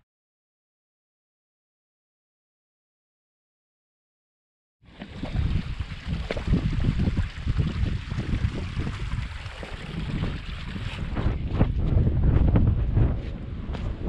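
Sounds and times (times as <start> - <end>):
wind buffeting microphone: 5.0 - 14.0.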